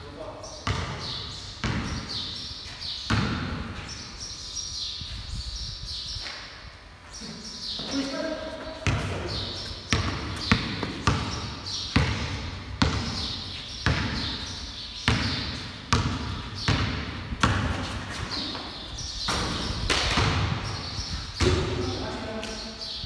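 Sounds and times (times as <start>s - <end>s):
basketball bouncing on concrete: 0.6s - 2.3s, 3.1s - 3.8s, 8.8s - 18.7s, 19.3s - 20.8s, 21.4s - 22.1s.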